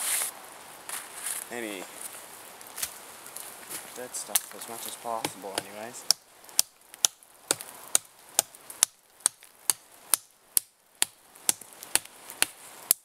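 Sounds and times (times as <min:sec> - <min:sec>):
knife chopping into tree limb: 0:05.2 - 0:13.0.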